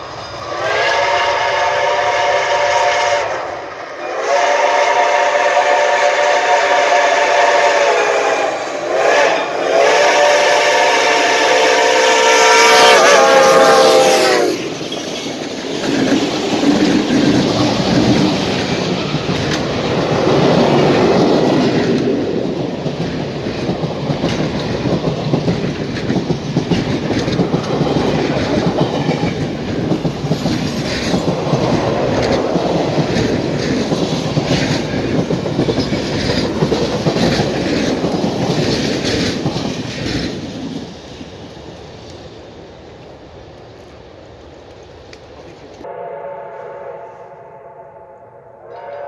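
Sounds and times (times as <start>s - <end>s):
train wheels clattering over rail joints: 14.5s - 41.9s.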